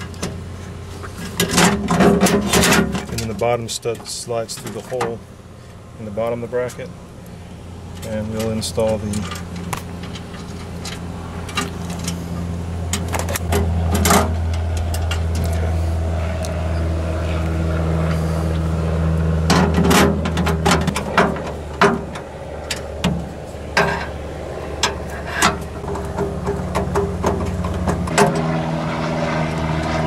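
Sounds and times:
low engine-like hum: 0:00.0 - 0:30.0.

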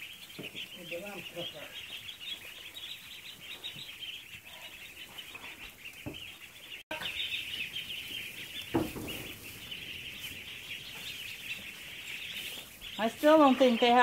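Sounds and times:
ducklings peeping: 0:00.0 - 0:14.0.

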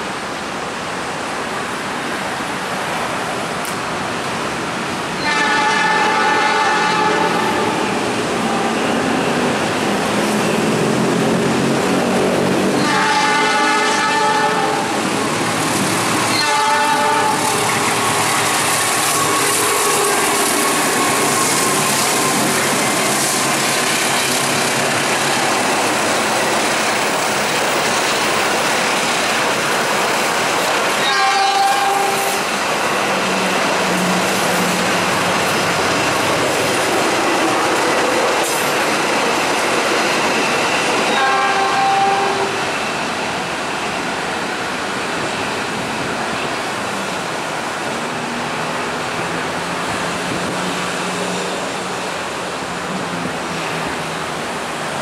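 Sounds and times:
train wheels on rails: 0:00.0 - 0:55.0
train horn blasts: 0:05.2 - 0:09.0, 0:12.8 - 0:15.0, 0:16.3 - 0:22.6, 0:31.0 - 0:32.5, 0:41.1 - 0:42.7.

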